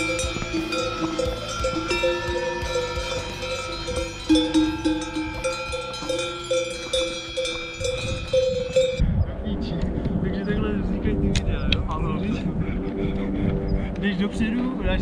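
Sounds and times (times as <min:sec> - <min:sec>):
cowbells clanking: 0:00.0 - 0:09.0.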